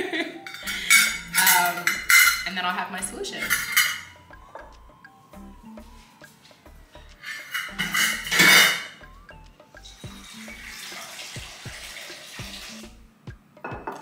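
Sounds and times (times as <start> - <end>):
background music with steady beat: 0.0 - 14.0
tap water filling glass bowl: 10.1 - 12.8.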